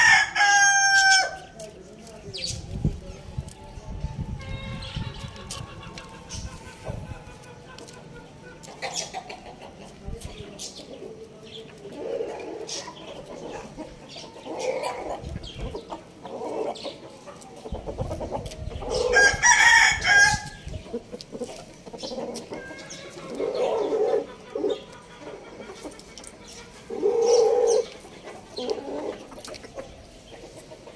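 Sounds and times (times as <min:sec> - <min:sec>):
chickens clucking: 0:00.0 - 0:30.9
rooster crowing: 0:19.0 - 0:20.6.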